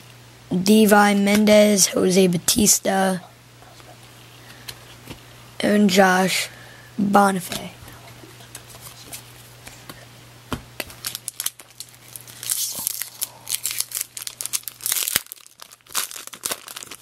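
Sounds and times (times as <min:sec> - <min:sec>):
foil wrapper tearing: 0:10.8 - 0:17.0.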